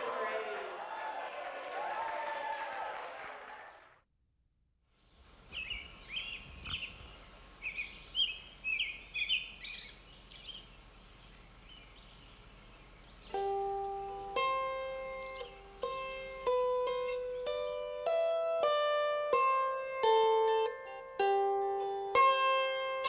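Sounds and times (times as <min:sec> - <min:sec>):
murmur of voices: 0:00.0 - 0:00.9
songbirds chirping: 0:04.9 - 0:17.6.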